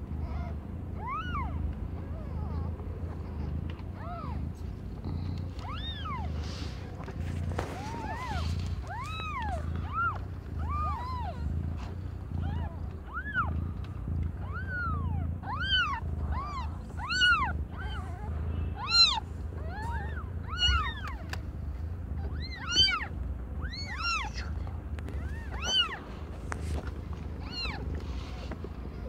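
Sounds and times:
kittens mewing: 0.0s - 29.0s.

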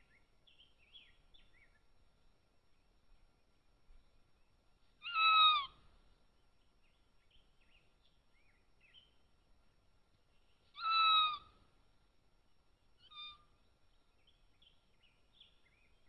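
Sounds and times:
faint small bird chirps: 0.0s - 1.8s, 4.3s - 5.9s, 6.6s - 9.3s, 10.2s - 11.7s, 13.0s - 16.0s.

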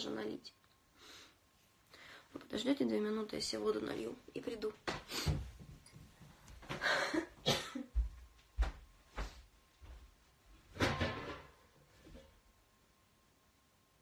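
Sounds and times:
dull footstep thumps: 8.0s - 10.0s.

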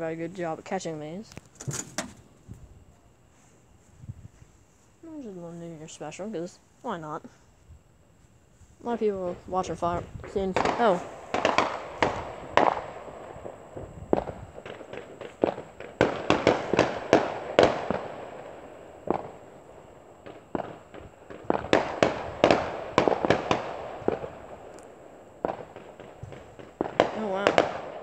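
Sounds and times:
fireworks bangs: 8.8s - 28.0s.

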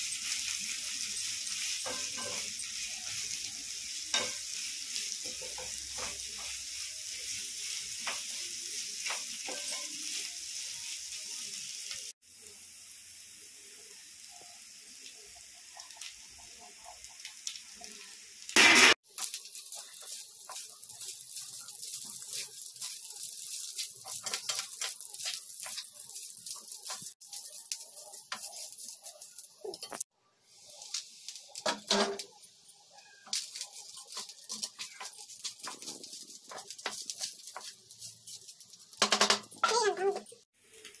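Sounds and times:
food sizzling in a frying pan: 0.0s - 41.0s
wooden spatula scraping: 19.2s - 30.0s, 33.2s - 39.0s.

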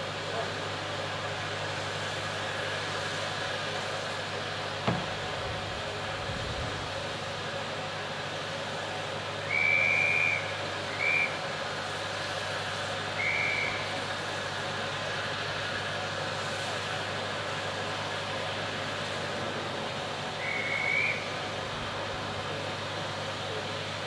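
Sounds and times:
steam hissing from locomotive: 0.0s - 24.0s
high-pitched steam whistle: 9.3s - 11.6s, 12.8s - 14.1s, 20.3s - 21.6s.

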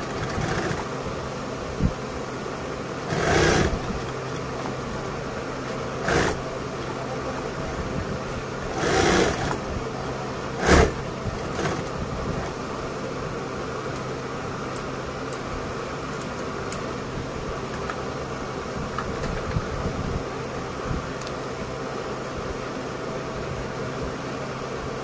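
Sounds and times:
steady mechanical hum: 0.0s - 25.0s.

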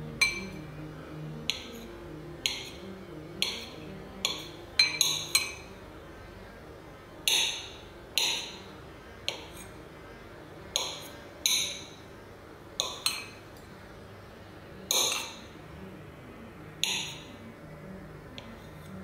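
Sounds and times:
soft background music: 0.0s - 19.0s.

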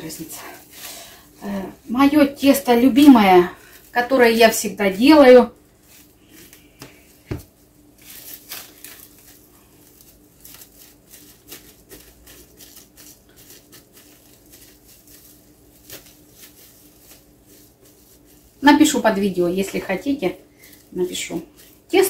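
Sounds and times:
dough squishing: 0.0s - 22.0s
plastic bag crinkling: 0.0s - 22.0s.

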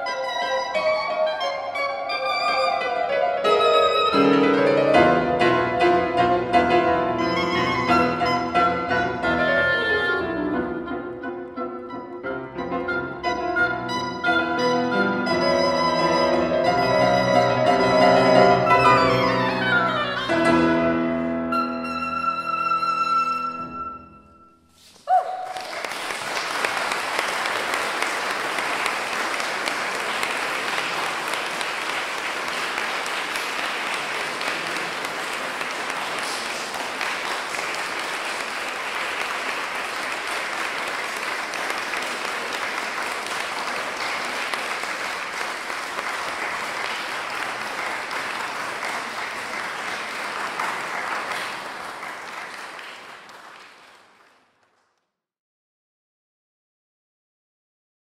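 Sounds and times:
oboe and piano playing: 0.0s - 24.7s
audience applause: 25.3s - 55.0s.

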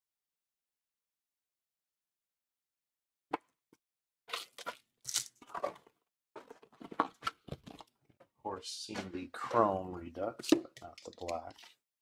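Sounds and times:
packaging crinkling and tearing: 4.3s - 5.8s.

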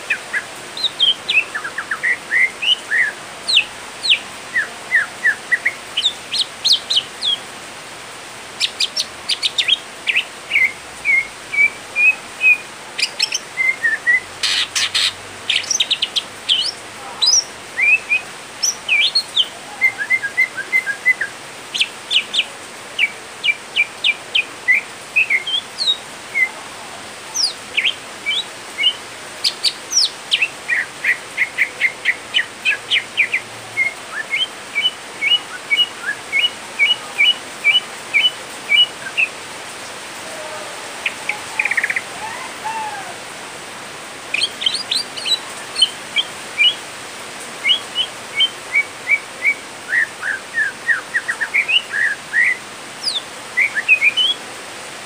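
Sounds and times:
bird singing chirps and whistles: 8.9s - 14.3s, 17.3s - 21.9s, 31.5s - 39.3s, 44.4s - 46.8s, 47.6s - 54.4s.

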